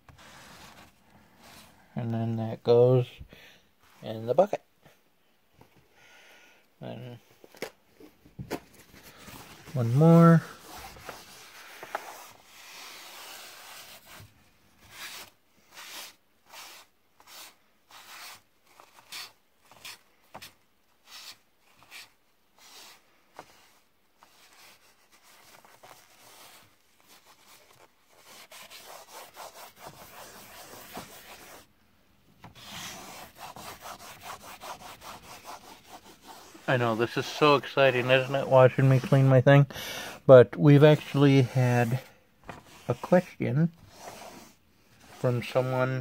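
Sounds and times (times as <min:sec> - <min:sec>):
paper towel wiping floor: 0:09.2 - 0:14.3, 0:21.0 - 0:31.7, 0:32.5 - 0:39.4, 0:41.0 - 0:45.9.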